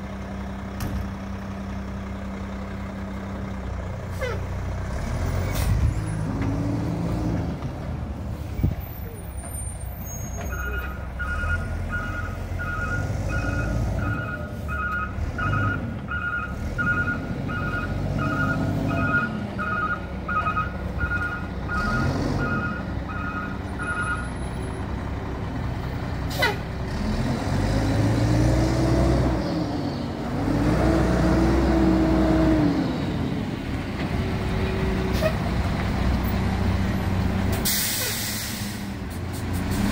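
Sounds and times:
diesel engine revving: 0.0s - 39.9s
reverse alarm beeping: 10.6s - 24.3s.

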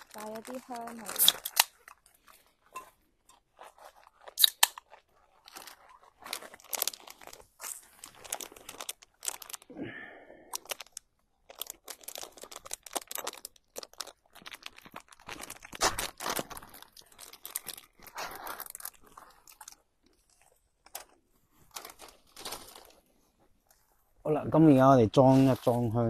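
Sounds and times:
plastic packaging crinkling: 0.0s - 9.7s, 10.4s - 23.9s.

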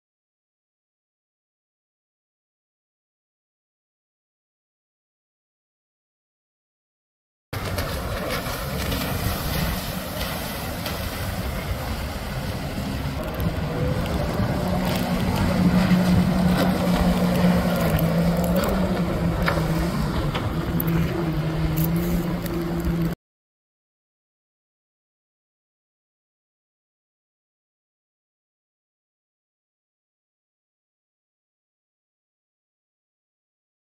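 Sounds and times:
jet ski engines: 7.6s - 23.2s
rushing wind and water: 7.6s - 23.2s.

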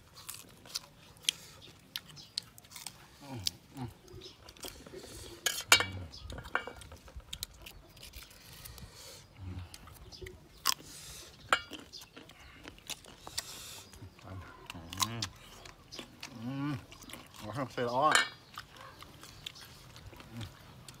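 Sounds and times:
crunchy chewing: 0.0s - 21.0s
knife cutting and scraping fruit: 4.2s - 9.2s.

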